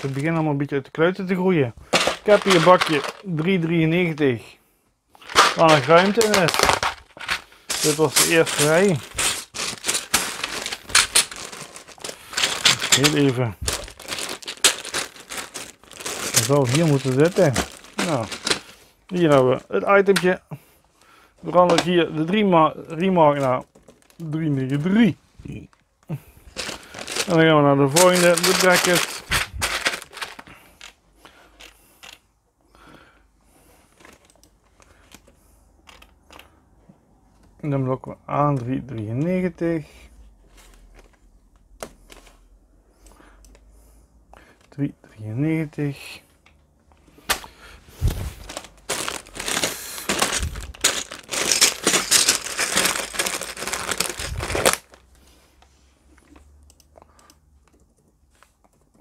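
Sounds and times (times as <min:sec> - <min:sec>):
plastic bags crinkling: 0:00.0 - 0:00.4, 0:01.8 - 0:04.2, 0:05.2 - 0:20.4, 0:21.0 - 0:25.2, 0:25.8 - 0:31.7, 0:47.2 - 0:55.2.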